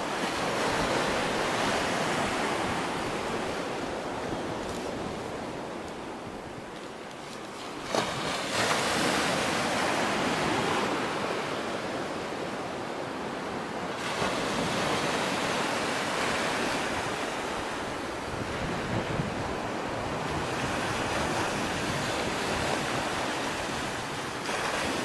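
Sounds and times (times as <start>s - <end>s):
wind buffeting microphone: 14.1s - 25.0s.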